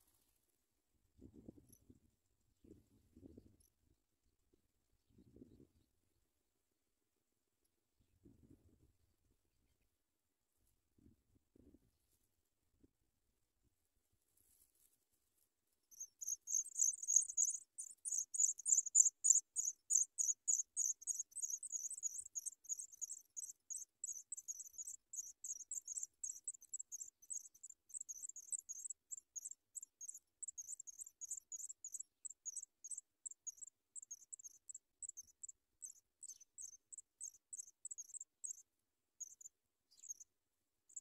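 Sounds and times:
nestlings cheeping: 0:15.9 - 0:38.6.

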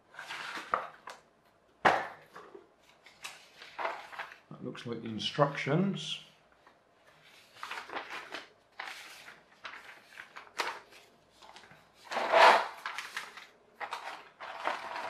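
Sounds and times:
paper rustling: 0:00.1 - 0:01.2, 0:02.8 - 0:04.5, 0:06.5 - 0:15.0
plastic bag crinkling: 0:07.5 - 0:11.8.

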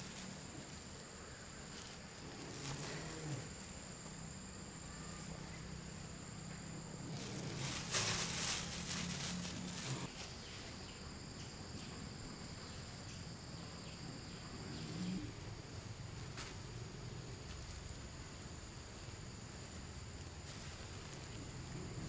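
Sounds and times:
insects chirring: 0:00.0 - 0:22.0
brief rustling: 0:07.2 - 0:10.4.

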